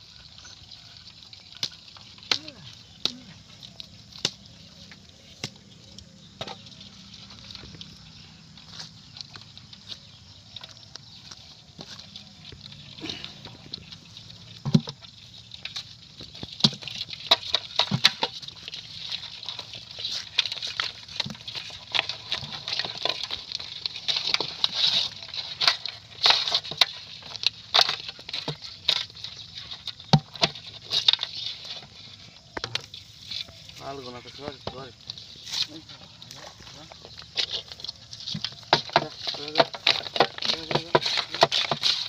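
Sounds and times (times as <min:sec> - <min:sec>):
snail shells clicking in metal basin: 0:36.2 - 0:42.0.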